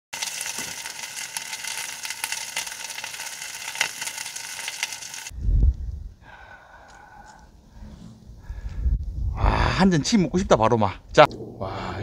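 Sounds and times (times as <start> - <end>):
meat sizzling and crackling: 0.1 - 5.3.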